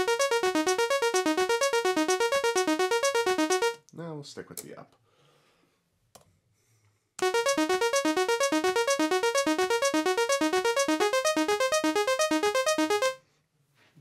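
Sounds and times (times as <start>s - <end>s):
synthesizer arpeggio: 0.0s - 3.8s, 7.2s - 13.2s.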